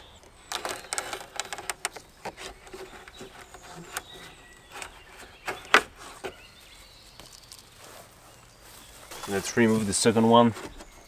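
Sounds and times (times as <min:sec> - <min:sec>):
rubber trim rustling and clicking: 0:00.1 - 0:06.4.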